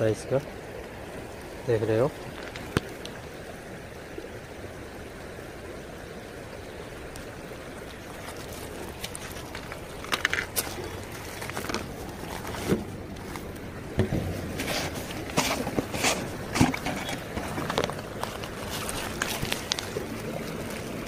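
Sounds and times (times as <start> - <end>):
river flowing: 0.0 - 21.0
pebbles crunching underfoot: 7.9 - 13.7, 14.4 - 21.0.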